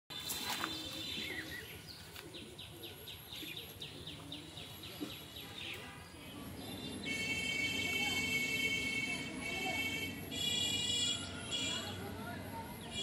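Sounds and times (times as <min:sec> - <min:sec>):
bird chirping: 0:00.1 - 0:07.3.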